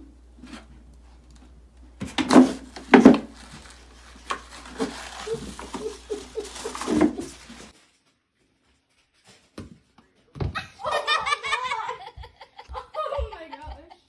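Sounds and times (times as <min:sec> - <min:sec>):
cat scrabbling in plastic bin: 0:02.0 - 0:07.7.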